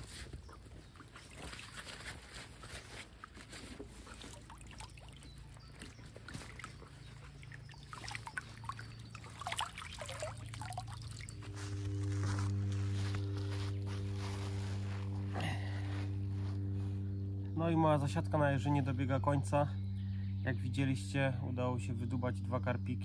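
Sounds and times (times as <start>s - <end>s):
water sloshing and splashing: 0.0s - 11.6s
water drips: 2.7s - 11.5s.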